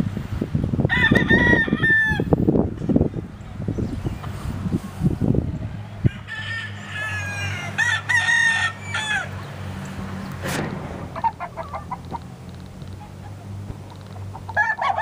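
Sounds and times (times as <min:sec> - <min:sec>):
rooster crowing: 0:00.9 - 0:02.4, 0:06.0 - 0:09.5, 0:14.5 - 0:15.0.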